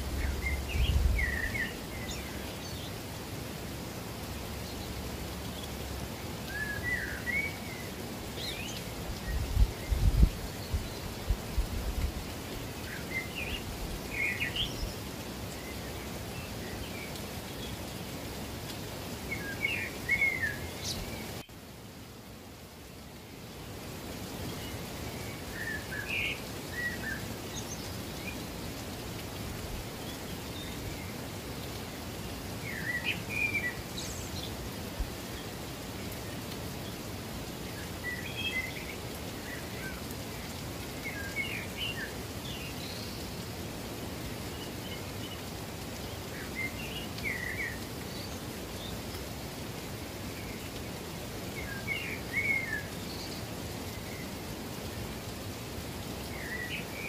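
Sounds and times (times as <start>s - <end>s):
birds chirping: 0.0s - 3.3s
running water rushing: 0.0s - 57.0s.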